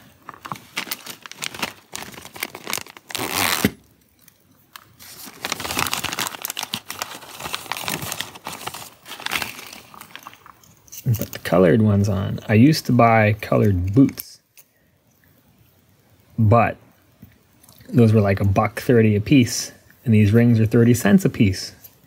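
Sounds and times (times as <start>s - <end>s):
plastic bag crinkling: 0.0s - 11.6s.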